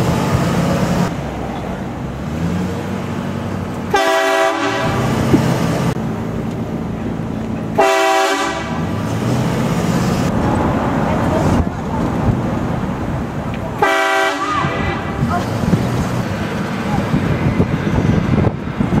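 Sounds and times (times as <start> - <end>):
road noise: 0.0 - 19.0
truck engine: 0.0 - 19.0
train horn blasting: 3.9 - 5.2, 7.8 - 8.9, 13.8 - 15.2.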